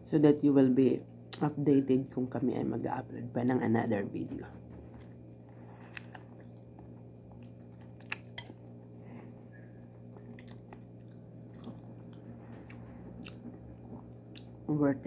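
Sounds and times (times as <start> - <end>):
steady low hum: 0.0 - 15.0
person chewing food: 4.9 - 14.6.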